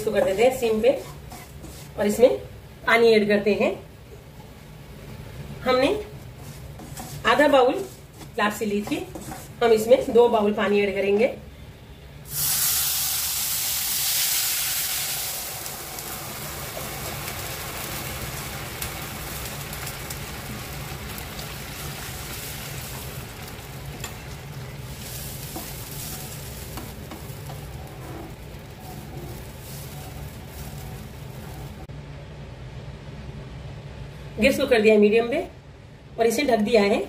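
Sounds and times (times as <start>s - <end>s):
wooden spatula scraping: 0.0s - 2.2s, 6.0s - 10.2s, 22.0s - 31.9s
water sizzling in hot pan: 12.3s - 31.9s.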